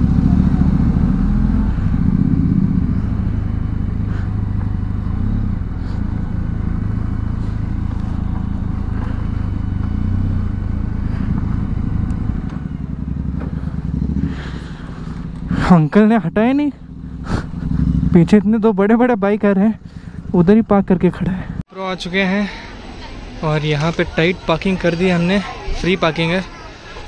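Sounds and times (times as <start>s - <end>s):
motorcycle engine rumbling: 0.0s - 27.0s.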